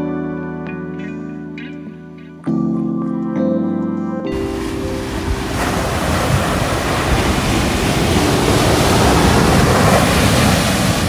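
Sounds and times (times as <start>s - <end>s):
ocean waves breaking: 4.3s - 11.0s
wind buffeting microphone: 4.3s - 11.0s.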